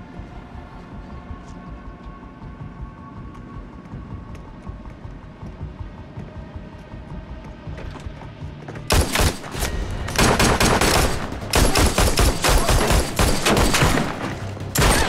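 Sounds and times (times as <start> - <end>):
rapid gunfire: 8.9 - 15.0.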